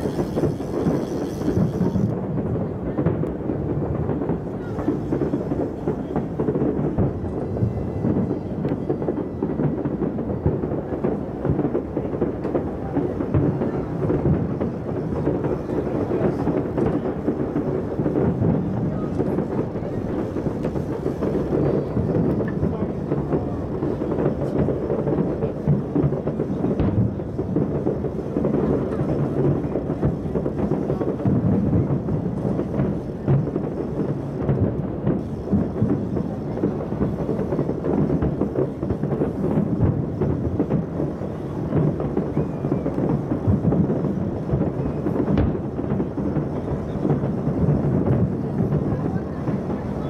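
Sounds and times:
distant fireworks rumbling: 0:00.0 - 0:50.0
sharp firework pops: 0:00.0 - 0:50.0.

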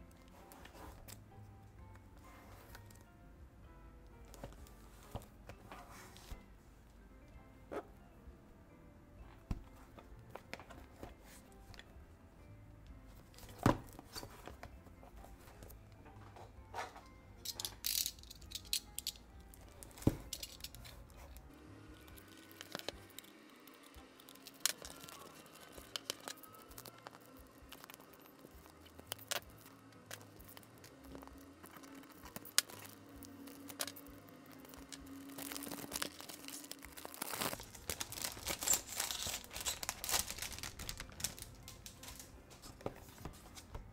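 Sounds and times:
shrink wrap crinkling and tearing: 0:17.7 - 0:43.7.

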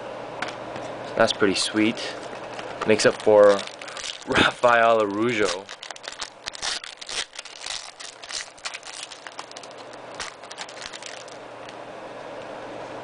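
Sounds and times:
foil wrapper crinkling: 0:02.3 - 0:11.4.

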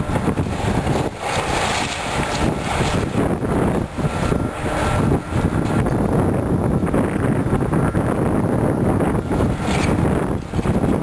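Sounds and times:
excavator demolishing building: 0:00.0 - 0:06.3
wind buffeting microphone: 0:00.0 - 0:11.0.

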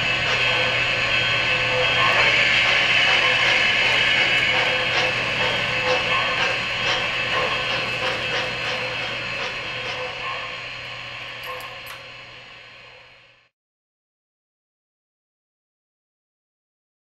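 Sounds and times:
model train wheels rattling: 0:00.0 - 0:10.3.

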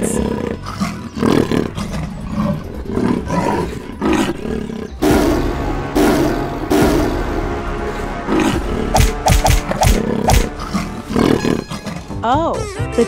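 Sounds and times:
big cat roaring: 0:00.0 - 0:07.2, 0:07.8 - 0:12.2
background music: 0:00.0 - 0:13.0.

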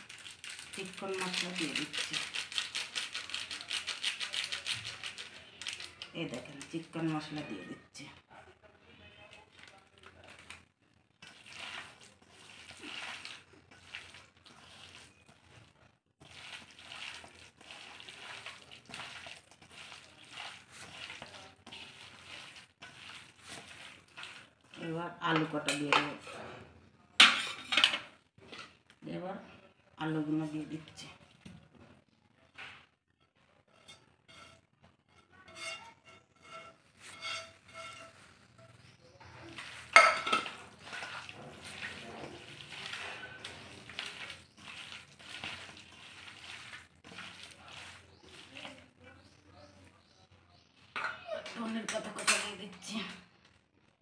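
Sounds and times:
hand squishing food in marinade: 0:09.1 - 0:25.0, 0:37.4 - 0:50.2
wet squelching of kneaded meat: 0:09.3 - 0:25.0, 0:39.1 - 0:49.4.

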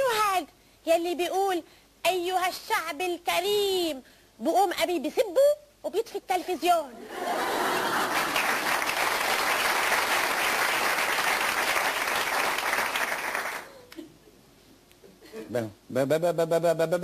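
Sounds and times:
audience applauding: 0:07.4 - 0:13.7.

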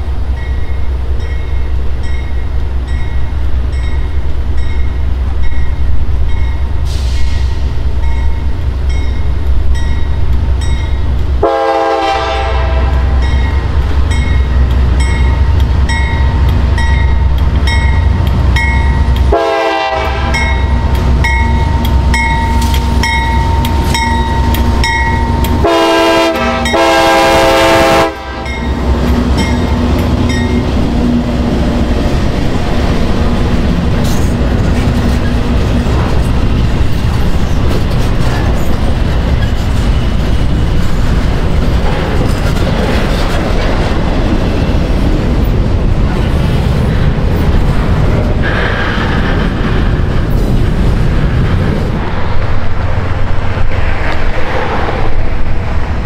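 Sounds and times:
train rumbling and clattering past: 0:00.0 - 0:56.0
locomotive air horn blasts: 0:11.4 - 0:13.3, 0:19.3 - 0:20.7, 0:25.5 - 0:28.7.

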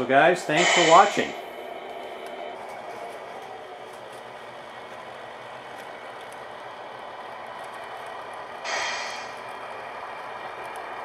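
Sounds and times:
simulated diesel truck engine: 0:00.0 - 0:11.0.

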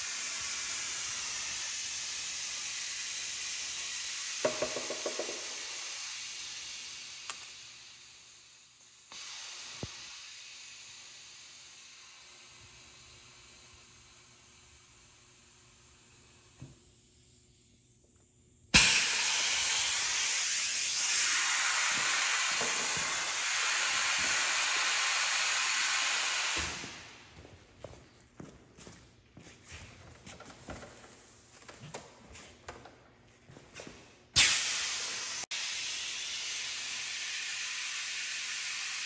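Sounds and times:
compressed air hissing: 0:18.8 - 0:27.1, 0:34.4 - 0:39.0.

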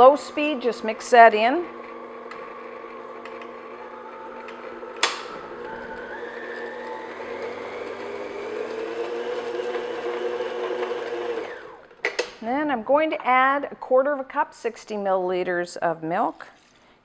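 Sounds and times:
stand mixer motor humming: 0:00.0 - 0:12.0.

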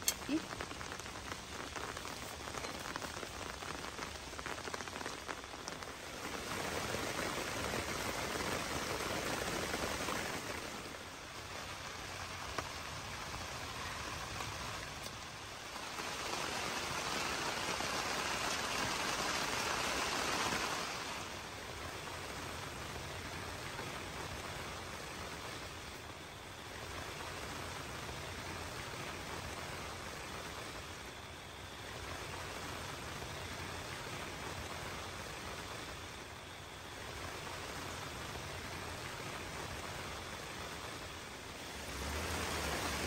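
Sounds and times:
rain falling on a tent: 0:00.0 - 0:43.0.

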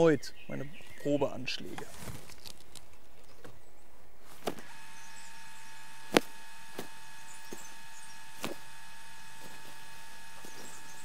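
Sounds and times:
steady electrical hum: 0:02.6 - 0:11.0.

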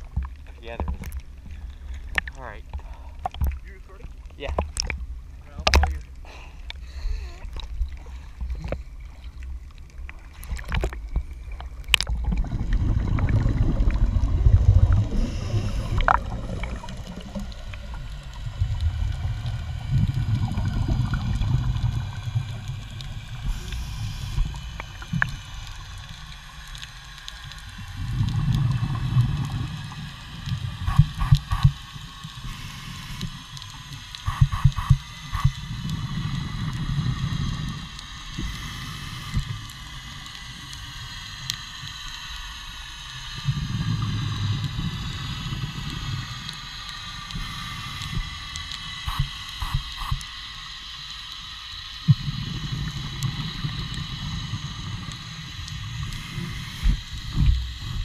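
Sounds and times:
water splashing against camera: 0:00.0 - 0:40.8, 0:43.4 - 0:50.6
scuba regulator bubbling exhale: 0:10.4 - 0:31.8.

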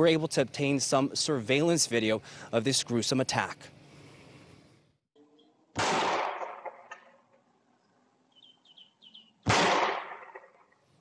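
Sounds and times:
gunshot echoing: 0:05.8 - 0:07.1, 0:09.4 - 0:10.7
bird chirping: 0:07.7 - 0:09.5.

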